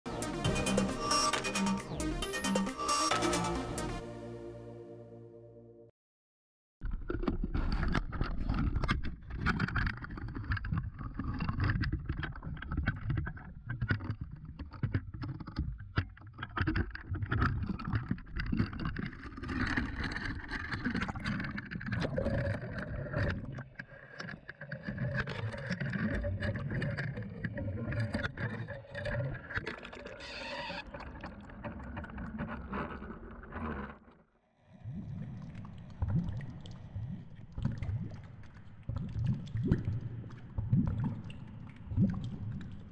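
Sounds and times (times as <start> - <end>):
water sloshing and rushing: 7.1 - 42.9.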